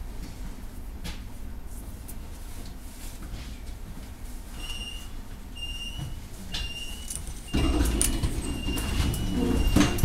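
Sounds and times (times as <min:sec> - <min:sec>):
tram low rumble: 0:00.0 - 0:10.0
mechanical running noise: 0:06.9 - 0:10.0.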